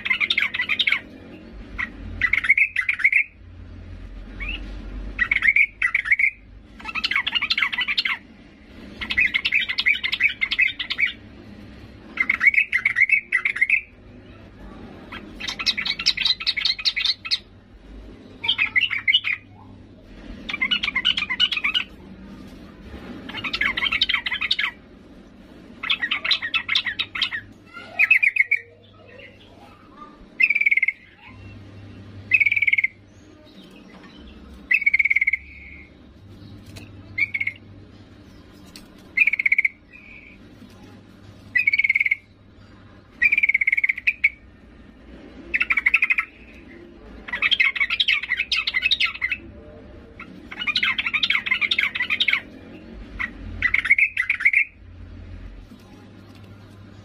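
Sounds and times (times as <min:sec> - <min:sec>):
bird calling in bubbly phrases: 0:25.8 - 0:31.6.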